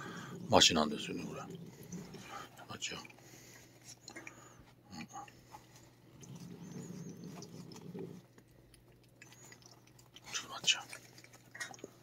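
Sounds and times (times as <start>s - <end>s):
cat rumbling: 0.0s - 2.6s, 6.1s - 8.3s
cat licking: 5.3s - 12.0s.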